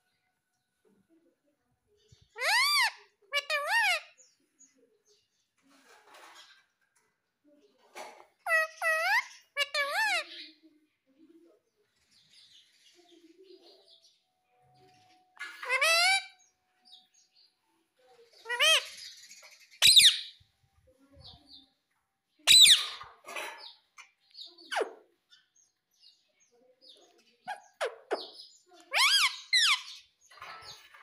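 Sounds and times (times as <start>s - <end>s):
parrot calling: 2.4s - 4.2s, 8.4s - 10.4s, 15.4s - 16.4s, 18.4s - 19.0s, 19.8s - 20.4s, 22.4s - 23.0s, 27.4s - 29.9s.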